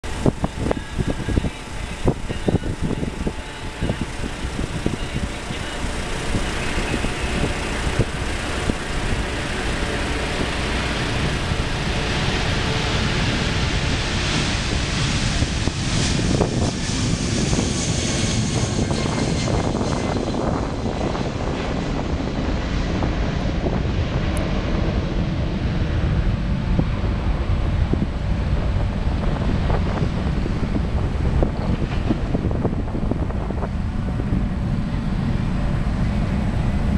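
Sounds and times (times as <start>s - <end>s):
jet engines roaring: 0.0s - 36.9s.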